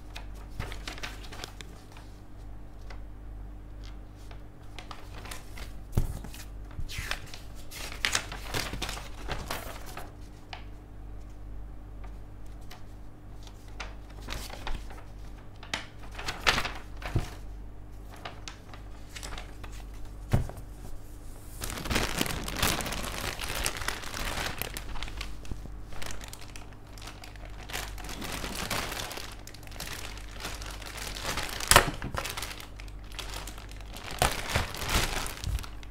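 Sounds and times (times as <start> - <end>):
plastic bags crinkling: 18.1 - 20.7, 21.5 - 35.9.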